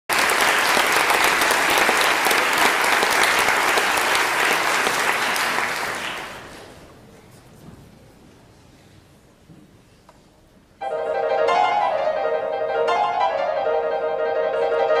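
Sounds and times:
audience applauding: 0.1s - 6.8s.

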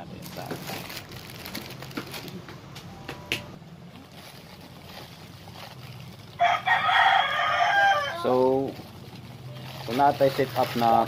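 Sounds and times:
rooster crowing: 6.3s - 8.5s.

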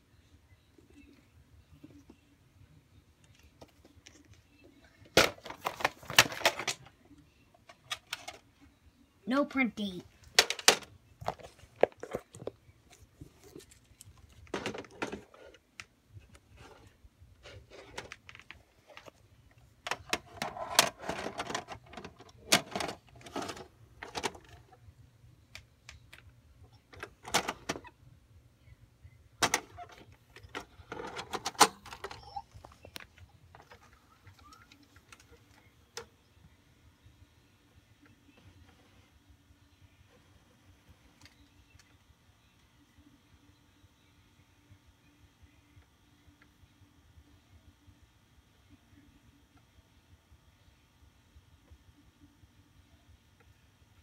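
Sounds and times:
plastic cassette rattling: 19.9s - 24.6s.

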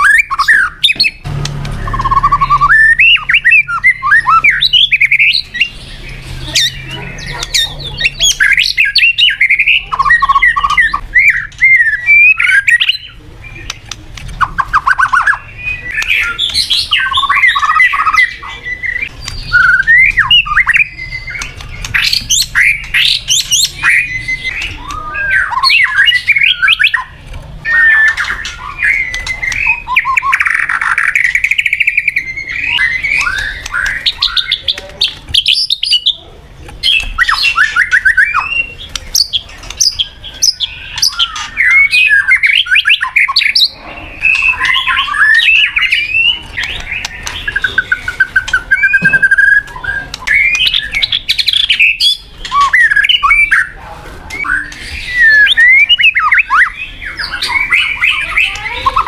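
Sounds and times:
songbird whistling and trilling: 0.0s - 1.2s, 1.8s - 36.2s, 36.8s - 59.0s.

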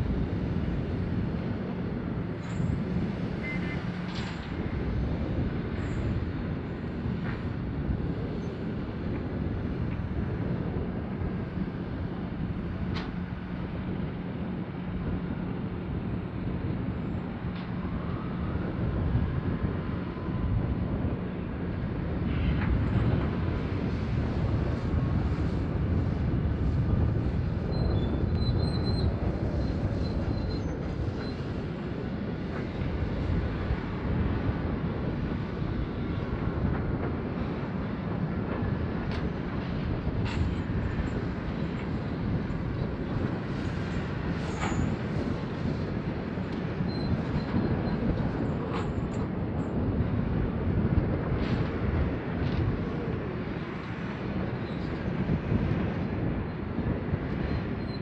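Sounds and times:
faint high squeals: 3.4s - 3.8s, 46.9s - 47.5s.

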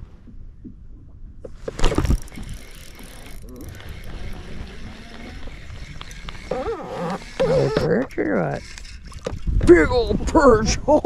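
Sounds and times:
fishing reel gears whirring: 2.1s - 9.4s.

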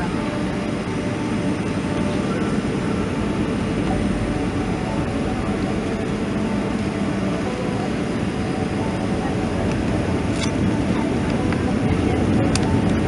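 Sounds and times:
jet engines humming: 0.0s - 13.0s.

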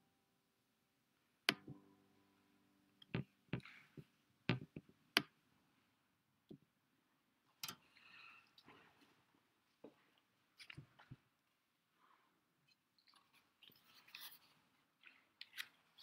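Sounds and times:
sharp knocks and clicks: 3.0s - 5.3s.

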